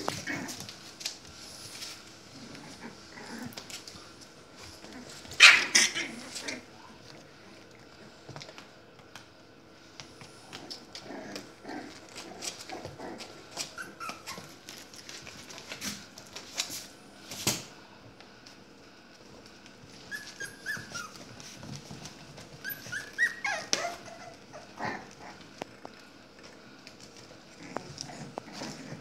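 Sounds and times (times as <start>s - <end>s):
puppies whimpering: 13.5s - 14.6s, 20.0s - 21.6s, 22.4s - 24.9s.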